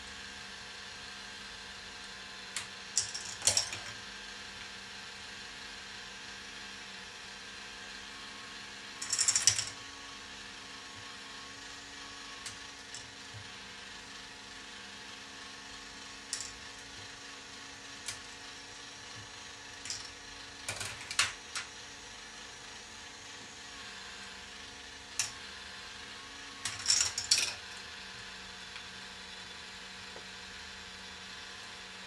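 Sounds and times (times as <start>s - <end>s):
machine drive humming: 8.9s - 32.0s
plastic balls clattering on track: 9.0s - 9.8s, 19.8s - 21.7s, 26.6s - 27.6s.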